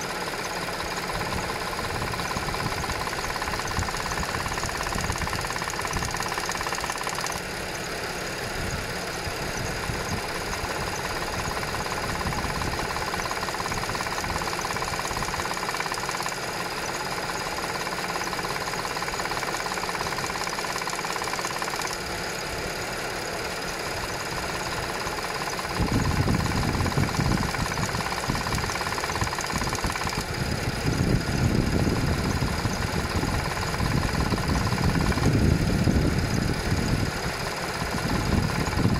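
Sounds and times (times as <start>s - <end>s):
engine running with knocking rattle: 0.0s - 38.9s.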